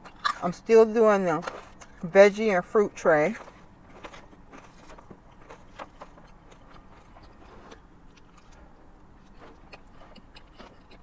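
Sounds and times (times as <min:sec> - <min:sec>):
low steady hum: 0:00.0 - 0:11.0
chewing: 0:03.4 - 0:11.0.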